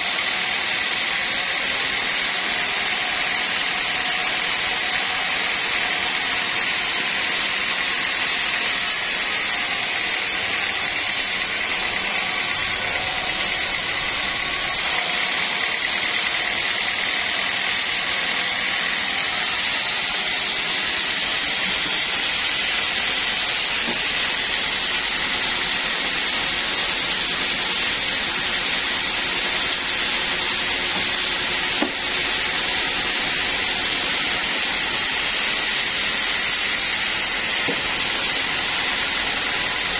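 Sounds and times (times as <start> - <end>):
band saw cutting log: 0.0 - 39.9.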